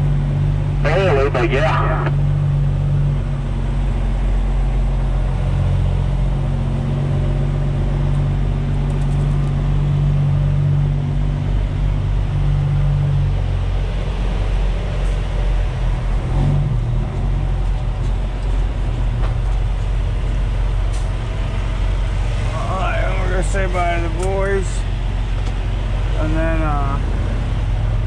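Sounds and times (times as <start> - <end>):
truck diesel engine running: 0.0 - 8.9, 16.8 - 28.0.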